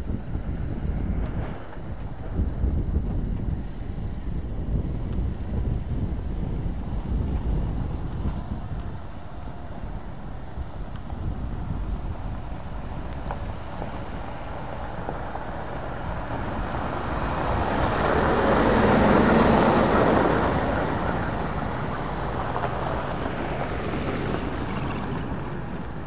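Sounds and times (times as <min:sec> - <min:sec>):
truck diesel engine: 0:05.5 - 0:26.0.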